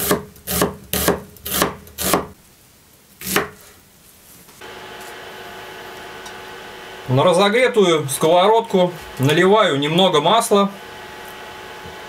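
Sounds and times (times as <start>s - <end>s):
knife slicing onion on wooden board: 0.0s - 2.4s, 3.2s - 3.6s.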